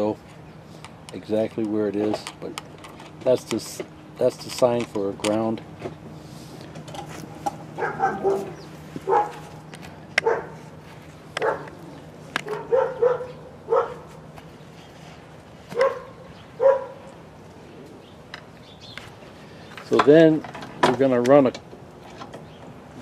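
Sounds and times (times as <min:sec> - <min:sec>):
steady low hum: 0:00.0 - 0:23.0
dog barking: 0:07.8 - 0:09.5, 0:10.2 - 0:10.6, 0:11.4 - 0:11.8, 0:12.4 - 0:14.1, 0:15.7 - 0:17.1.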